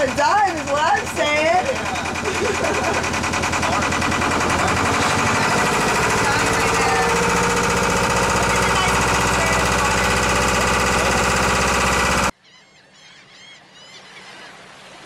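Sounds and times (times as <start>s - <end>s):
boat engine knocking steadily: 0.0s - 12.3s.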